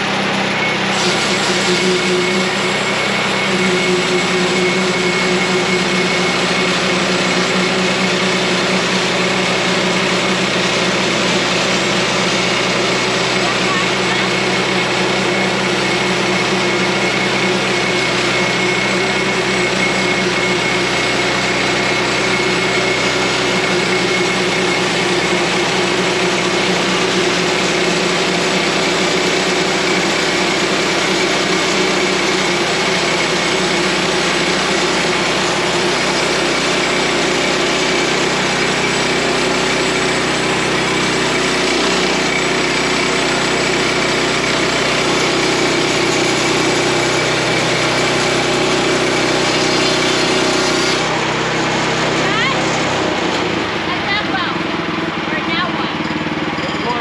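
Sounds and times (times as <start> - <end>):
bandsaw mill engine running: 0.0 - 57.0
band blade cutting through log: 49.2 - 51.1.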